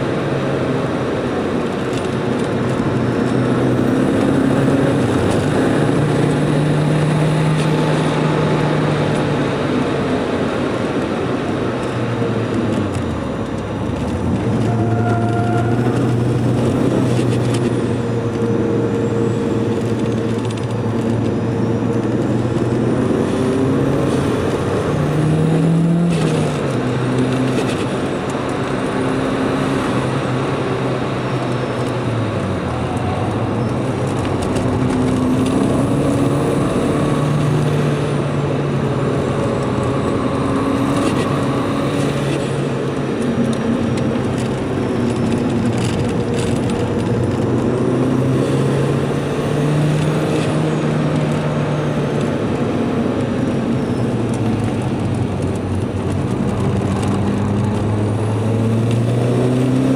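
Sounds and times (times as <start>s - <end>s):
car engine accelerating: 0.0s - 59.9s
road and tyre noise: 0.0s - 59.9s.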